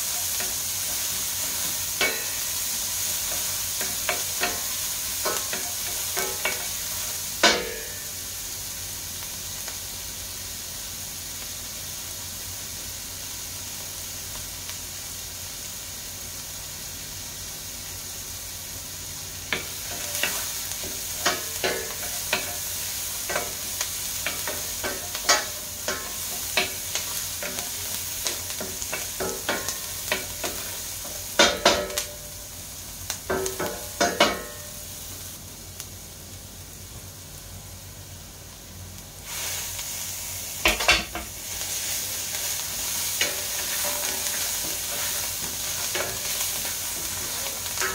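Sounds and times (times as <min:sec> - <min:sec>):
onion sizzling in oil: 0:00.0 - 0:47.9
wooden spoon knocking on pan: 0:31.4 - 0:32.0, 0:33.3 - 0:34.6.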